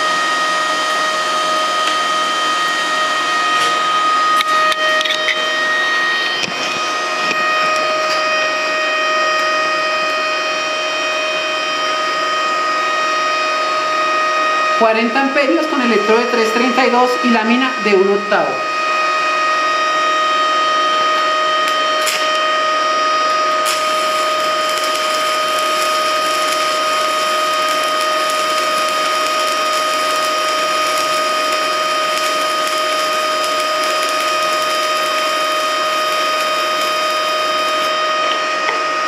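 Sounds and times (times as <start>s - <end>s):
welding arc crackling hiss: 21.6s - 38.8s.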